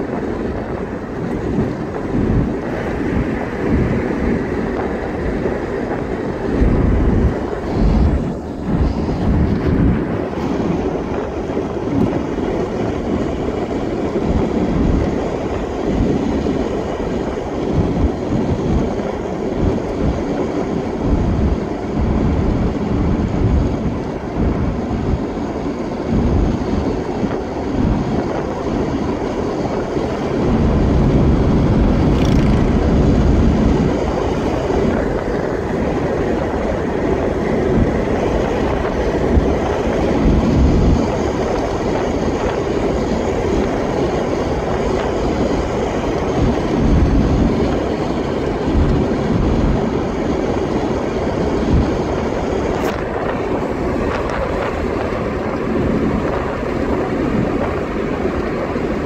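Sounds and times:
car engine: 0:00.0 - 0:59.0
tyres rumbling on asphalt: 0:00.0 - 0:59.0
wind noise: 0:00.0 - 0:59.0.

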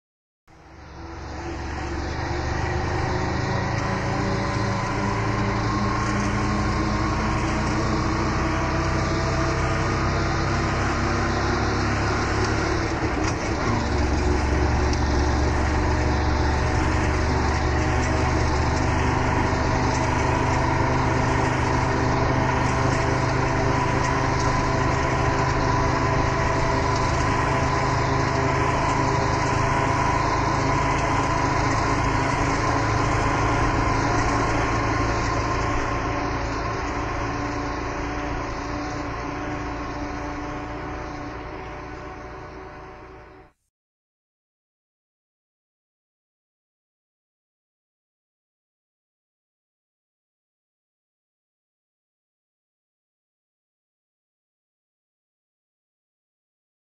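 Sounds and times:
auto rickshaw engine running: 0:00.5 - 0:43.6.

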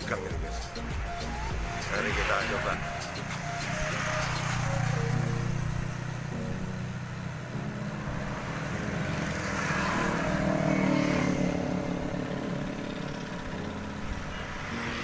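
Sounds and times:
motorcycle engine cruising: 0:00.0 - 0:15.0
road noise: 0:00.0 - 0:15.0.

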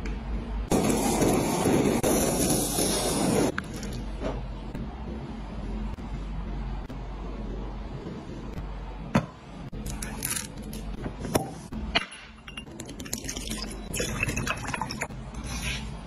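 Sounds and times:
drink pouring into a glass: 0:12.9 - 0:15.1.

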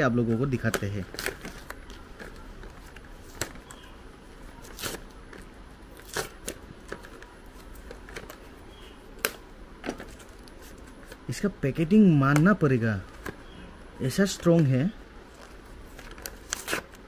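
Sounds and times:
blister pack tearing and crinkling: 0:04.6 - 0:07.3, 0:15.3 - 0:17.0
plastic packaging cracking: 0:04.6 - 0:08.4, 0:15.9 - 0:17.0.

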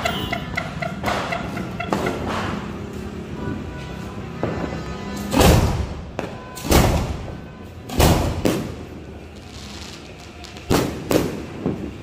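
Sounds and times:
firework shells booming: 0:05.3 - 0:08.9.

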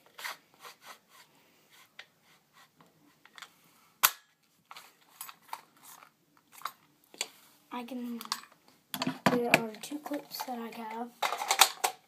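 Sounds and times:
plastic rifle clicks and rattles: 0:11.2 - 0:12.0.

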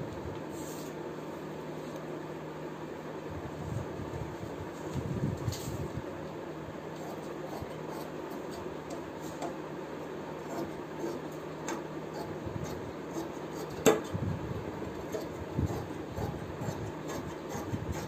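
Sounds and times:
shears cutting fabric: 0:10.4 - 0:14.0, 0:14.9 - 0:18.0.

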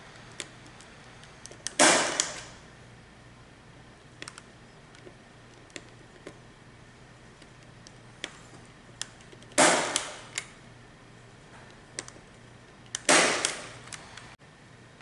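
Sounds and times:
punch-down tool snap: 0:01.6 - 0:02.5, 0:09.6 - 0:10.5, 0:13.0 - 0:13.8.

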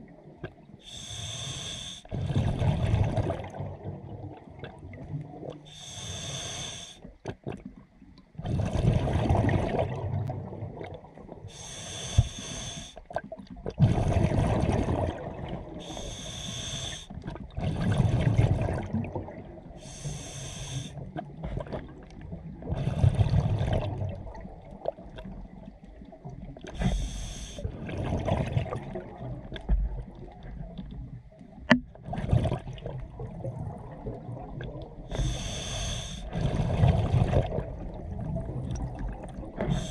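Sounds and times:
regulator hissing inhalation: 0:00.9 - 0:02.1, 0:05.7 - 0:07.0, 0:11.5 - 0:13.0, 0:15.8 - 0:17.1, 0:19.8 - 0:21.0, 0:26.8 - 0:27.6, 0:35.1 - 0:36.3, 0:39.6 - 0:39.9
exhaled bubbles gushing: 0:02.1 - 0:05.6, 0:08.4 - 0:11.5, 0:13.1 - 0:16.0, 0:17.2 - 0:19.8, 0:21.3 - 0:30.8, 0:31.7 - 0:35.4, 0:36.0 - 0:39.9.

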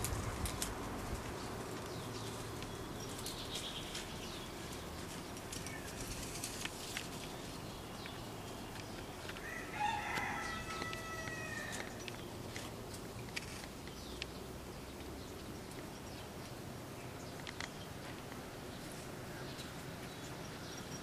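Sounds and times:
steady background hiss: 0:00.0 - 0:21.0
rooster crowing: 0:09.4 - 0:12.0.

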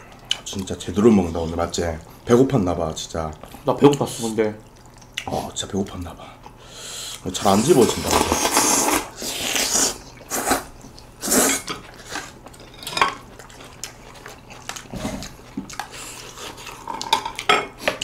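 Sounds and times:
noodles slurped: 0:07.4 - 0:12.4.

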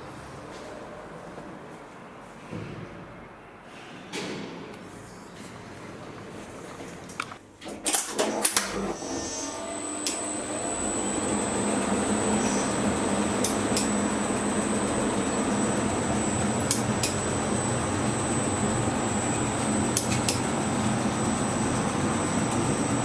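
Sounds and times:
lift machinery humming and whining: 0:08.2 - 0:23.0
elevator clicks and clunks: 0:11.3 - 0:21.2.

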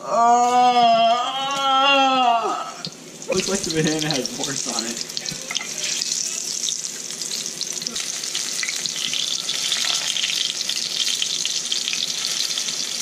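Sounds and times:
food sizzling in hot oil: 0:02.8 - 0:13.0.

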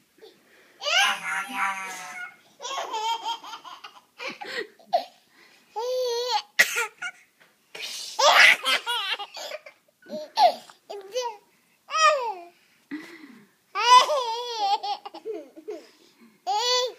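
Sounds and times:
baby laughing: 0:00.8 - 0:04.1.

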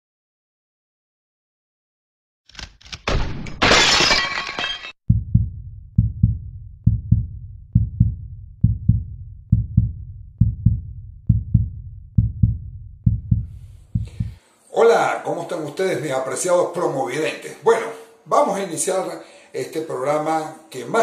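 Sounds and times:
glass shattering crash: 0:02.9 - 0:05.0
deep heartbeat thumping: 0:05.1 - 0:14.4.

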